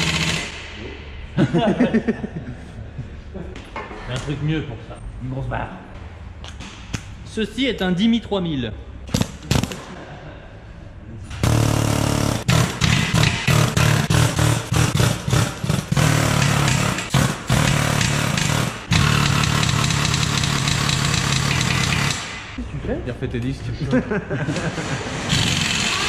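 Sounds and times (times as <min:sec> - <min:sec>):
pneumatic impact wrench hammering: 0:00.0 - 0:00.8, 0:11.4 - 0:22.6, 0:25.3 - 0:26.0.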